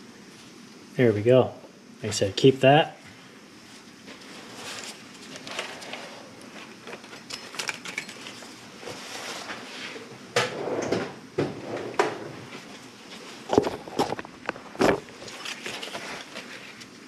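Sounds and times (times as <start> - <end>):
metal tools clinking: 6.9 - 8.6.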